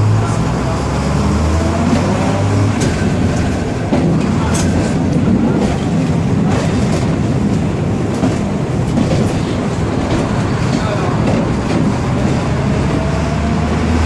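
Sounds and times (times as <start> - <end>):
tram wheels rumbling on rail: 0.0 - 14.0
wheels clicking over rail joints: 2.6 - 12.7.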